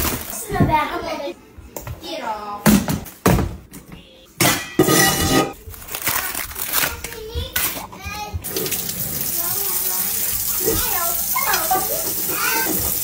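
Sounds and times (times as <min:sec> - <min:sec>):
kitchen clattering: 0:04.4 - 0:13.0
child's voice: 0:06.1 - 0:08.5, 0:09.3 - 0:13.0.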